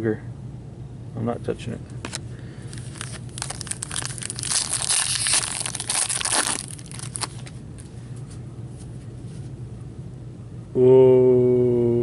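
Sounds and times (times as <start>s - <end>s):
plastic wrapper crinkling: 2.6s - 7.9s.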